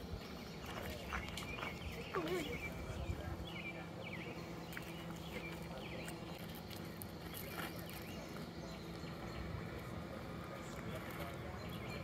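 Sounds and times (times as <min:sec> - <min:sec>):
bird chirps: 0:00.1 - 0:06.6.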